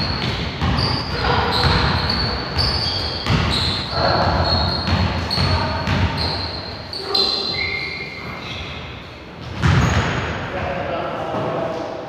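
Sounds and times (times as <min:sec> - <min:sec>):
basketball bouncing on gym floor: 0:00.0 - 0:06.4, 0:09.4 - 0:10.3
sneaker squeaks: 0:00.0 - 0:10.2.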